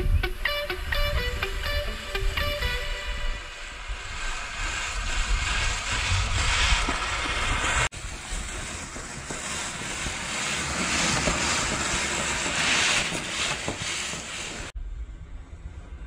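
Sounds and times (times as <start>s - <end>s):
tyres churning gravel: 3.8s - 14.7s.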